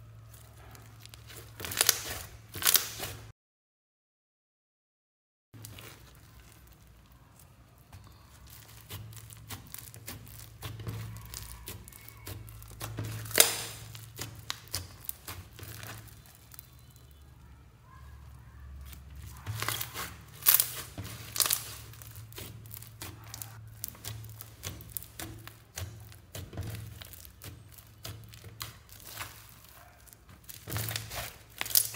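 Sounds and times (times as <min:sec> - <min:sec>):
slime crunching and popping: 0:00.1 - 0:03.3, 0:05.6 - 0:17.2, 0:18.2 - 0:31.9.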